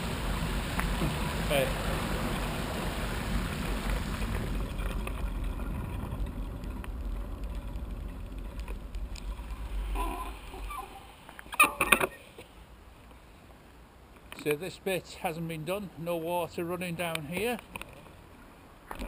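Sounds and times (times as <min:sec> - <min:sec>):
low rumble: 0:00.0 - 0:11.3
bicycle tyres through water: 0:00.0 - 0:12.6.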